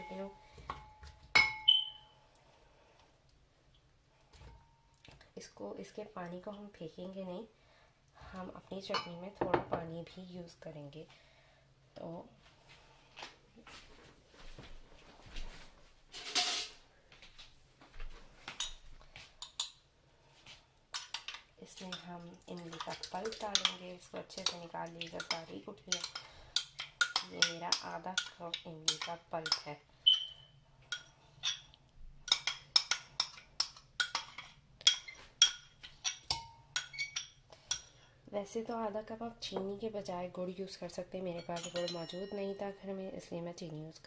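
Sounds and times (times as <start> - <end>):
metal spoon clinking on glass bowl: 32.3 - 37.8, 41.4 - 42.6.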